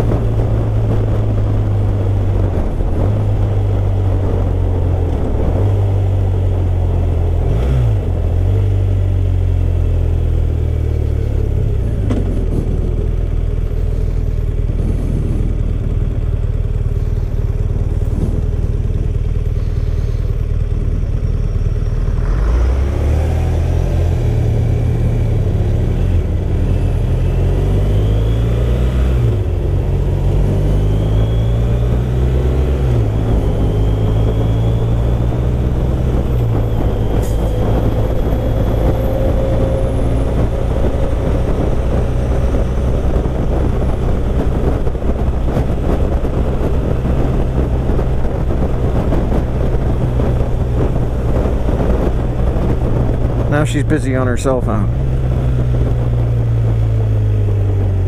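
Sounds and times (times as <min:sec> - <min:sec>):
wind rush: 0:00.0 - 0:08.5, 0:14.6 - 0:16.6, 0:17.3 - 0:20.0, 0:29.2 - 0:58.0
motorcycle engine shifting gears: 0:00.0 - 0:58.0.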